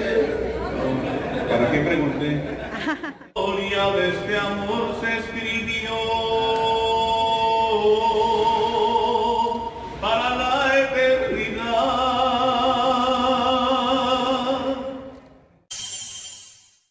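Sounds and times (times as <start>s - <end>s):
man singing unaccompanied: 3.4s - 15.0s.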